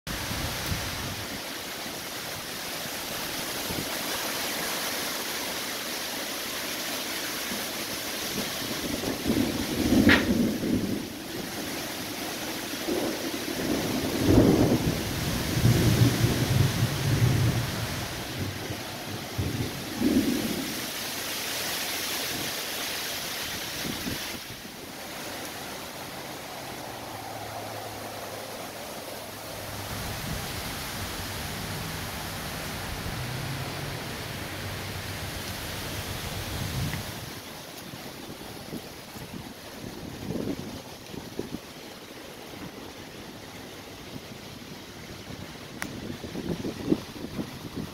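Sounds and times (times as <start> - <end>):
heavy rain pouring: 0.1 - 47.9
storm wind in trees: 0.1 - 47.9.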